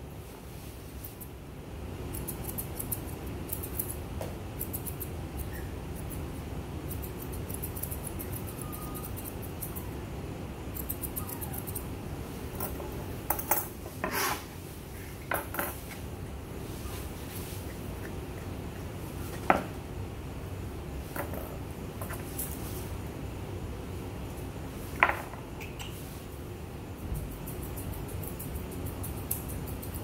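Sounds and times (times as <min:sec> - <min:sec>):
steady low hum: 0:00.0 - 0:30.0
grooming shears snipping fur: 0:00.2 - 0:01.4, 0:02.0 - 0:10.0, 0:10.6 - 0:13.2, 0:15.7 - 0:19.8, 0:22.0 - 0:23.0, 0:24.3 - 0:30.0.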